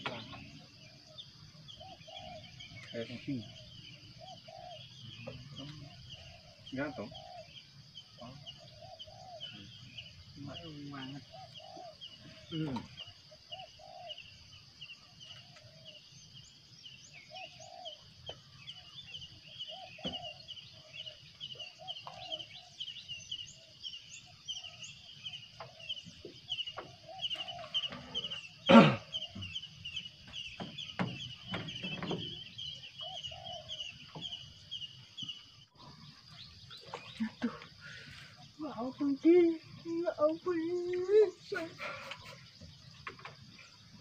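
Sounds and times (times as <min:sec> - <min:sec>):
birds chirping rapidly: 0:00.0 - 0:44.0
insects buzzing: 0:00.0 - 0:44.0
short lower bird calls: 0:17.2 - 0:34.4
knocks: 0:30.3 - 0:32.4.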